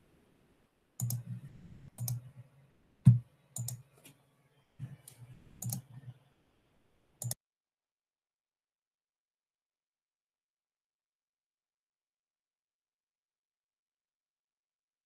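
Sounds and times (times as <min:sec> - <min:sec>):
computer keys or mouse clicking: 0:01.0 - 0:01.4, 0:02.0 - 0:02.3, 0:03.1 - 0:03.9, 0:04.9 - 0:06.1.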